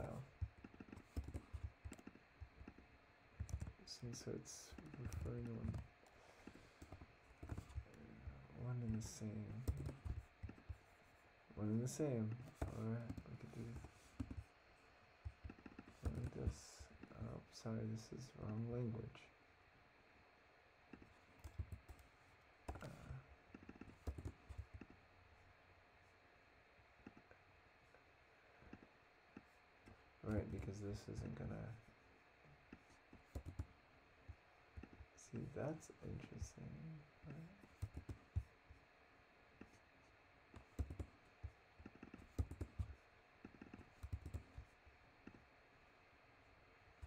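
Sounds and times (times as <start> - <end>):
keyboard typing clicks: 0.1 - 2.8, 3.4 - 3.8, 4.7 - 5.8, 6.4 - 7.9, 8.8 - 10.7, 12.3 - 14.4, 22.7 - 24.9, 33.1 - 33.7, 37.6 - 38.5, 40.6 - 45.4.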